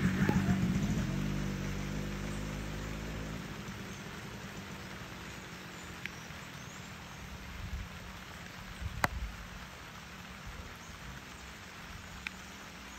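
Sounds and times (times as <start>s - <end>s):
steady hiss: 0.0s - 12.9s
faint ticks: 5.9s - 6.4s, 12.2s - 12.6s.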